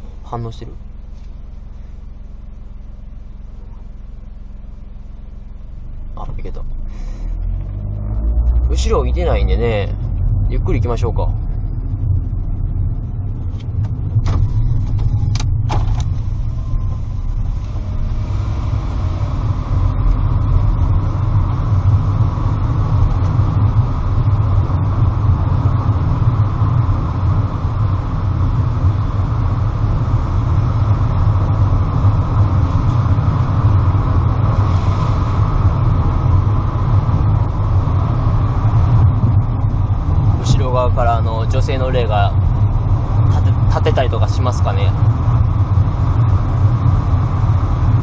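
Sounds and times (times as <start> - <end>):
car engine and tyre rumble: 0.0 - 48.0.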